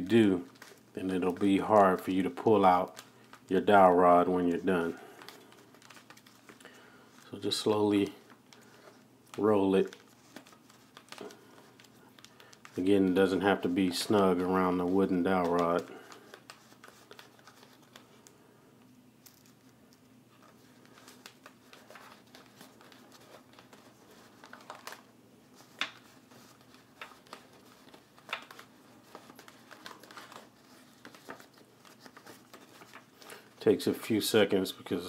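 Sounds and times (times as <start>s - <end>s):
cellophane crinkling: 0.0s - 18.4s, 19.2s - 35.0s
sharp cellophane crackles: 0.4s - 3.6s, 19.2s - 33.8s.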